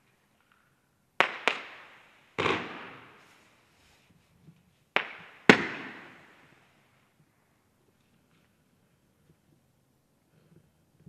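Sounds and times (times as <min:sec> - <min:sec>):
firework shots: 0:01.2 - 0:03.8, 0:04.9 - 0:07.0.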